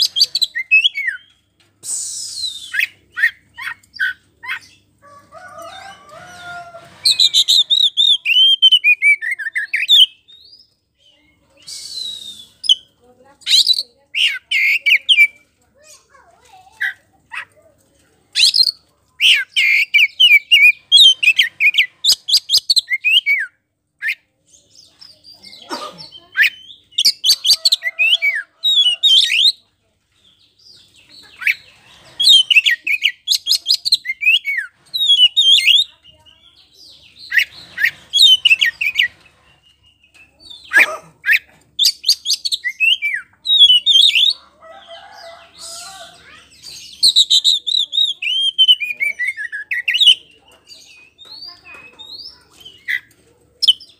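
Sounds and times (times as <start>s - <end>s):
bird singing whistles and trills: 1.9s - 3.4s, 11.6s - 12.9s.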